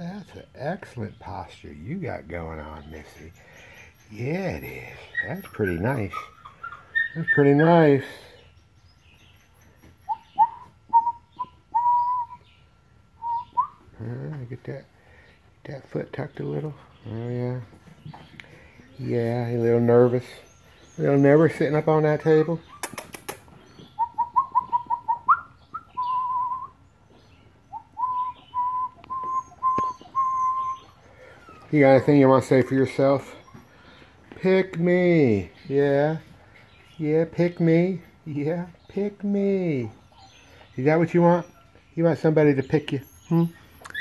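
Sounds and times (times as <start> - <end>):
puppy whining: 2.7 - 12.5, 16.8 - 36.7, 37.7 - 39.2, 39.8 - 42.0, 43.0 - 44.0.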